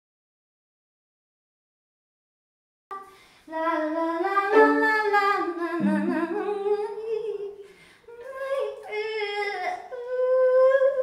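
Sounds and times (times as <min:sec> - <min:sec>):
woman singing long gliding notes: 0:03.5 - 0:11.0.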